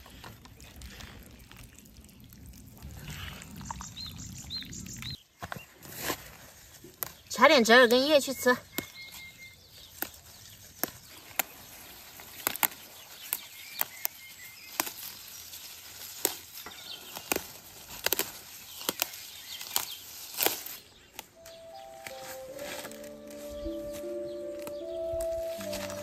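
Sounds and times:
leaves rustling: 0.0s - 26.0s
plant stems snapping: 6.8s - 8.0s, 9.8s - 26.0s.

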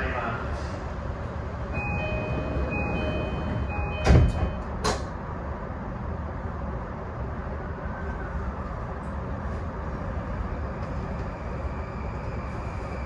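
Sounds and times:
train low rumble: 0.0s - 13.0s
electronic two-tone chime: 1.8s - 4.6s
sliding doors thudding shut: 1.8s - 5.2s.

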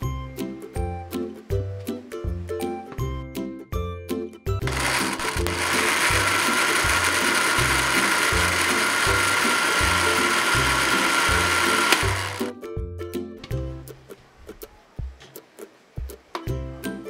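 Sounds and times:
blender motor whining: 4.6s - 12.5s
background music with bass line: 16.0s - 17.0s.

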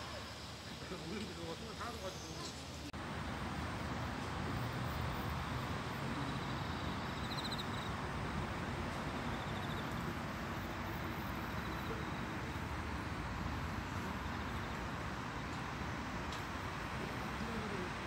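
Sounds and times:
crickets trilling: 0.0s - 18.0s
distant city traffic: 0.0s - 18.0s.

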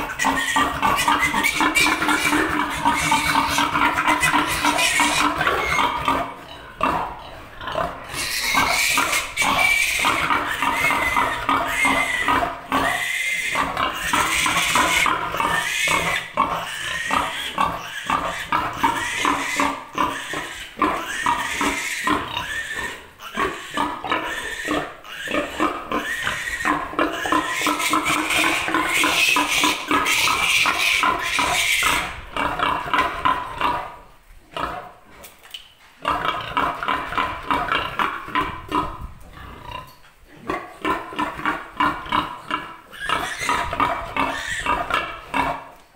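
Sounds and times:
piglet squealing: 0.0s - 6.2s, 8.1s - 32.1s, 42.9s - 43.7s, 44.3s - 44.8s.

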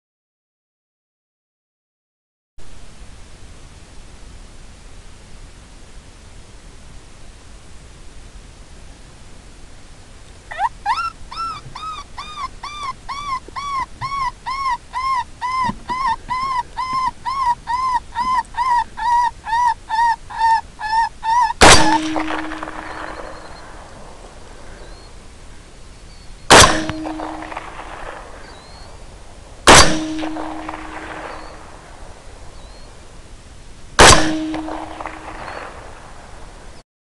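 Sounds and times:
predator call yelps: 10.5s - 23.8s, 26.5s - 27.8s, 29.8s - 31.6s
rifle shots: 21.6s - 23.6s, 26.5s - 28.8s, 29.7s - 31.7s, 34.0s - 36.0s.

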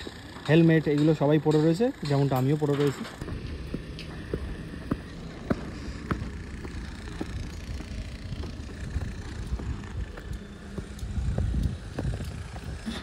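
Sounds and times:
footsteps on concrete: 3.2s - 13.0s
low steady rumble: 3.2s - 13.0s.

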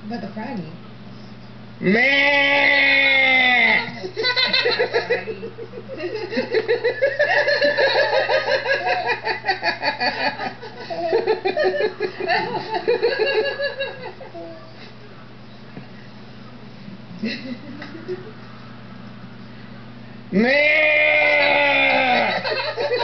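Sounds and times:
hearty laughter in bursts: 3.8s - 14.4s, 17.2s - 18.4s, 21.2s - 23.0s.

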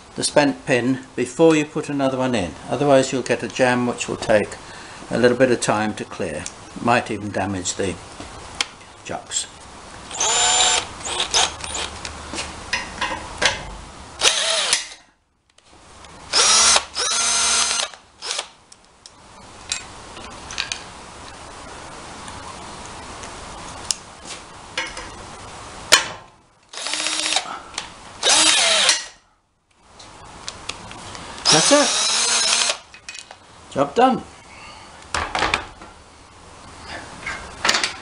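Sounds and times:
cordless drill bursts: 10.1s - 11.9s, 14.2s - 15.0s, 16.3s - 18.5s, 26.7s - 27.5s, 28.2s - 29.2s, 31.4s - 32.8s.

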